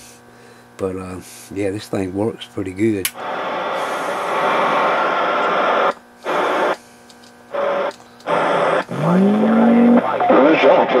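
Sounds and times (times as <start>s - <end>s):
radio static hiss: 3.0s - 11.0s.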